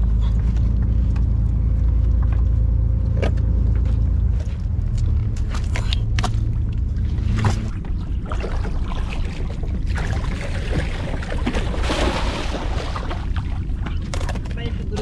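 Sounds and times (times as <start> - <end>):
boat engine rumble: 0.0 - 15.0
fish thrashing in water: 6.4 - 14.6.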